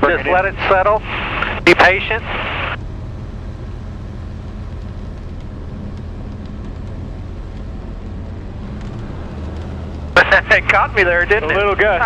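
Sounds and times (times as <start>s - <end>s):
aircraft engine and propeller: 0.0s - 12.0s.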